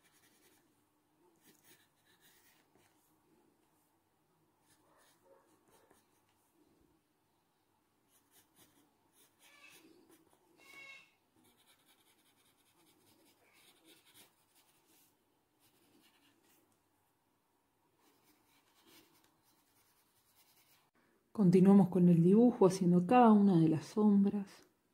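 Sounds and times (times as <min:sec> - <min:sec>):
pencil scratching on paper: 0:00.0 - 0:00.6, 0:01.4 - 0:03.0, 0:04.6 - 0:06.4, 0:08.1 - 0:16.6, 0:18.0 - 0:20.9.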